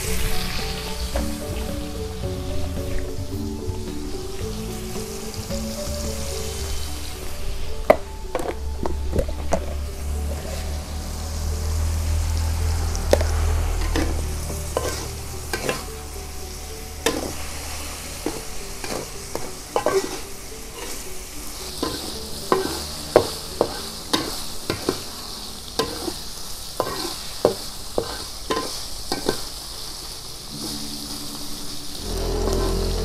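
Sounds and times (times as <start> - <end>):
food sizzling in oil: 0.0 - 33.0
metal spatula scraping a wok: 6.0 - 29.6, 30.5 - 33.0.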